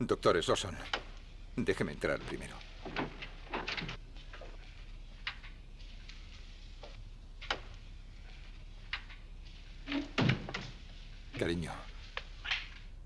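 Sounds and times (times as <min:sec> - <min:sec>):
door opening: 0:09.8 - 0:10.9.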